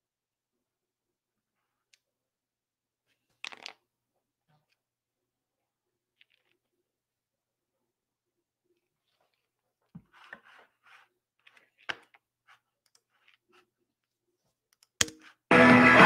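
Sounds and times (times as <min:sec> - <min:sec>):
mouse and keyboard clicks: 0:14.8 - 0:15.4.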